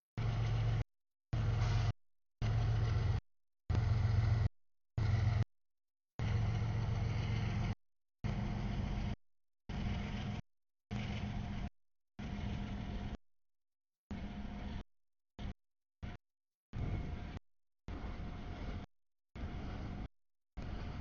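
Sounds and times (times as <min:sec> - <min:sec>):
train wheels rumbling on rail: 0:00.2 - 0:00.8, 0:01.4 - 0:05.4, 0:06.2 - 0:10.4.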